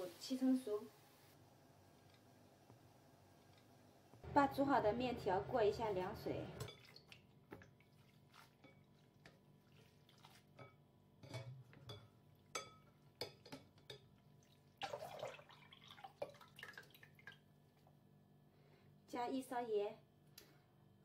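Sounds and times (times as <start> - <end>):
water dripping: 6.6 - 10.4, 11.9 - 18.0.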